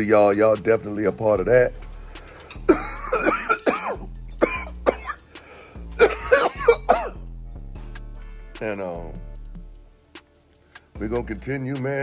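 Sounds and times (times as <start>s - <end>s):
quiet background music: 0.0s - 12.0s
man coughing: 2.6s - 7.3s.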